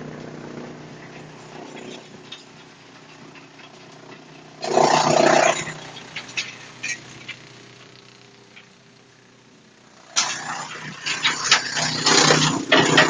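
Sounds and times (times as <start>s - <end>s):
wood chipper humming: 0.0s - 13.0s
loud rough burst: 4.4s - 7.7s, 9.9s - 13.0s.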